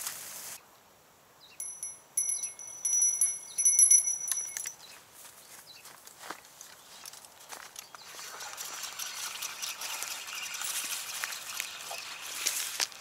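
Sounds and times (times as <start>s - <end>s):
bite alarm bell jingling: 1.6s - 4.8s.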